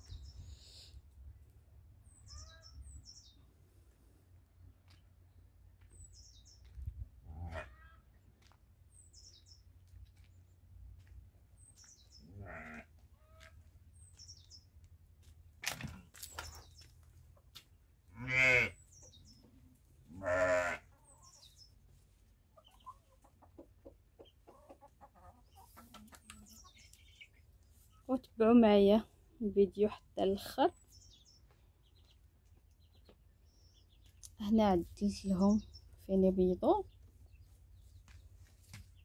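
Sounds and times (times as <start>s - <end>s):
farm animals calling: 2.1s - 3.3s, 7.2s - 8.2s, 12.0s - 13.7s, 18.0s - 21.8s, 22.4s - 28.1s.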